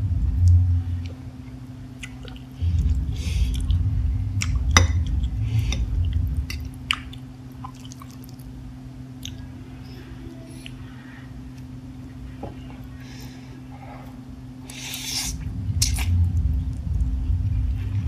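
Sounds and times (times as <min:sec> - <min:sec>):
steady low hum: 0:00.0 - 0:18.0
wet chewing and mouth clicks: 0:06.1 - 0:08.5.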